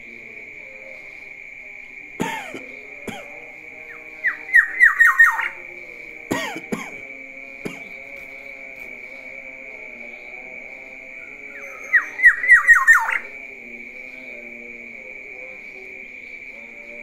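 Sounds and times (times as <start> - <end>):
bird harsh calls: 3.9 - 5.6, 11.2 - 13.4
bird whistled notes: 11.6 - 13.3.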